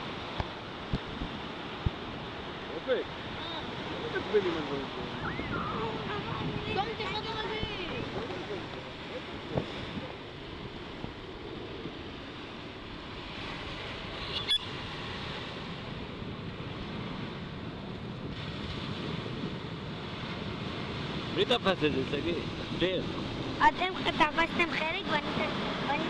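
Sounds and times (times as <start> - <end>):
sea surf on sandy beach: 0.0 - 26.0.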